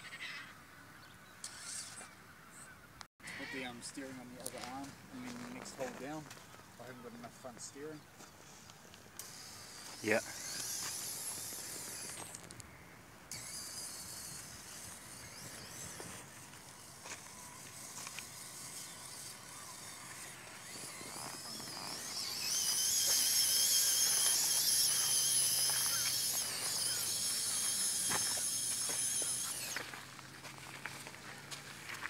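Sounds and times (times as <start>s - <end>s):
electric motor whining: 9.2s - 12.6s, 13.3s - 32.0s.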